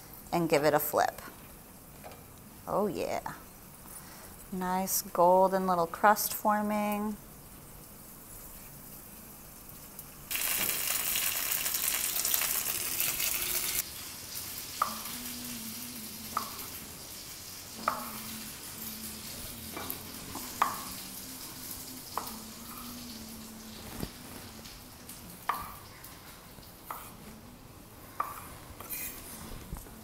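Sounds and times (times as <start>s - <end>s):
food sizzling in hot oil: 7.4s - 27.1s.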